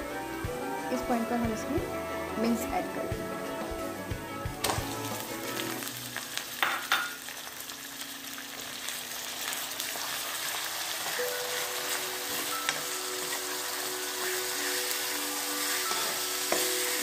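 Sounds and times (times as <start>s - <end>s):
meat sizzling in oil: 4.5s - 17.0s.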